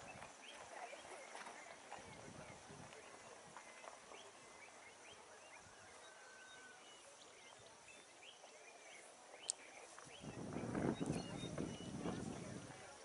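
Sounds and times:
faint bird chirps: 0.0 - 13.0
low background hiss: 0.0 - 13.0.

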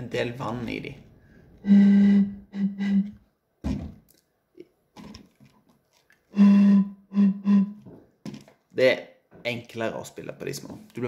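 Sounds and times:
blowing across bottle mouth: 1.6 - 4.0, 6.3 - 7.8.

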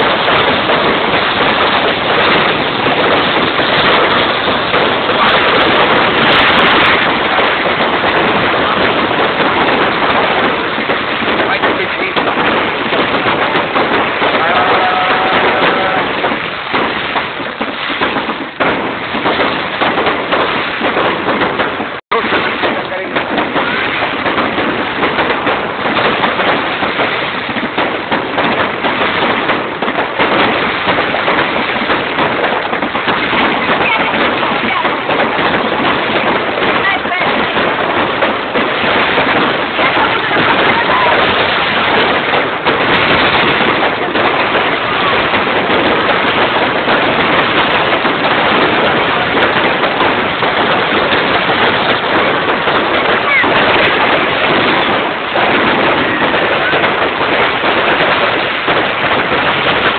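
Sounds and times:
fireworks crackling: 0.0 - 59.9.

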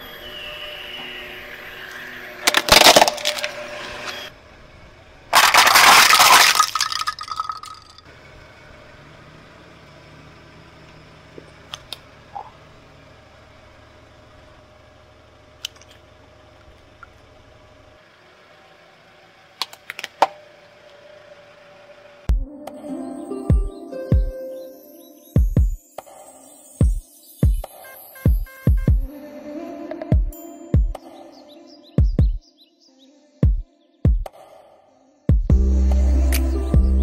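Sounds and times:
plastic toys cracking under tyre: 2.4 - 3.6, 5.3 - 8.0, 19.6 - 20.4.

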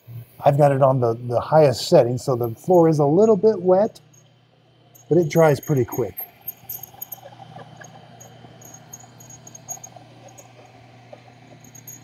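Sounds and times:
high-pitched ticks: 4.9 - 10.7
robot vacuum hum: 6.9 - 12.0.

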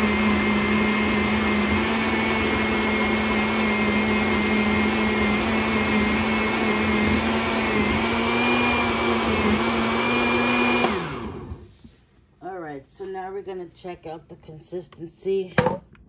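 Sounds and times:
blender motor running: 0.0 - 11.7.

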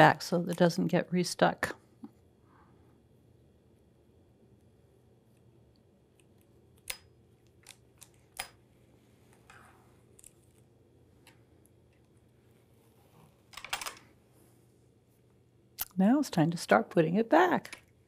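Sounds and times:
soft rustle: 8.6 - 13.5.

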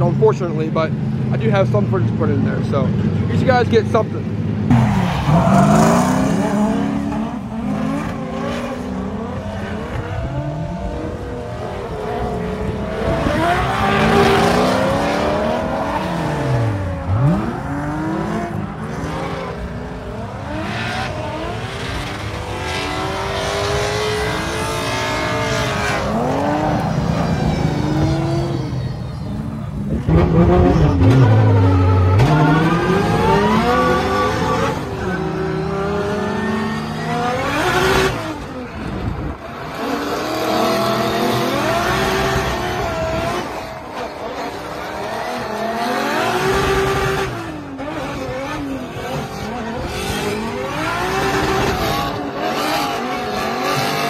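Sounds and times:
car engines revving: 0.0 - 54.0
tyre squeal: 25.2 - 29.7.

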